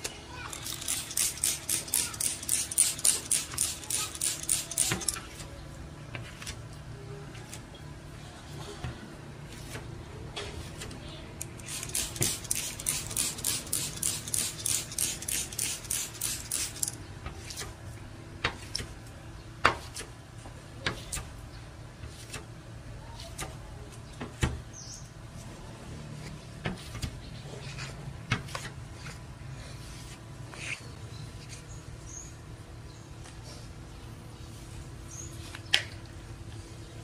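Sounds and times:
sandpaper scrubbing glass: 0:00.5 - 0:05.5, 0:11.5 - 0:17.7.

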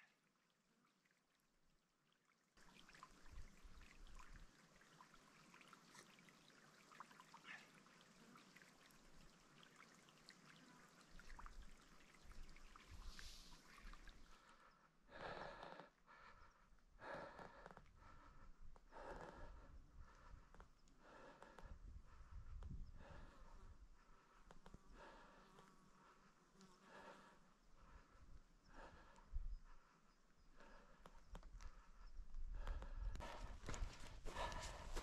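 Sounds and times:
soft puffs of air: 0:12.8 - 0:14.4.

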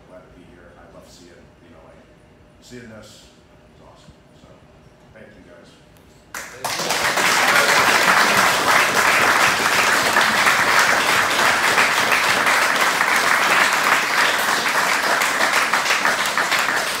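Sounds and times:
loud applause: 0:06.4 - 0:17.0.

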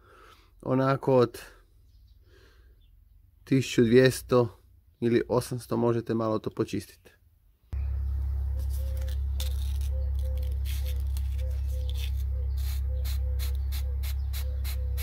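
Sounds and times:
loud low hum: 0:07.7 - 0:15.0
sandpaper scratching metal: 0:08.6 - 0:15.0.

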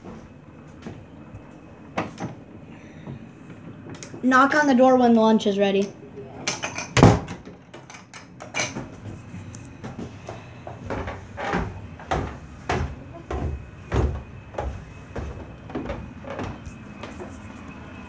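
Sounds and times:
heavy footsteps down stairs: 0:00.0 - 0:03.9, 0:08.8 - 0:18.0.

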